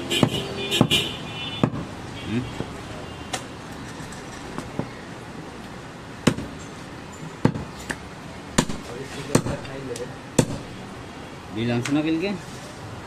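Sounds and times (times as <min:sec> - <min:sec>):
background noise: 0:00.0 - 0:13.0
knife chopping meat on wood: 0:07.4 - 0:07.7, 0:08.6 - 0:09.7.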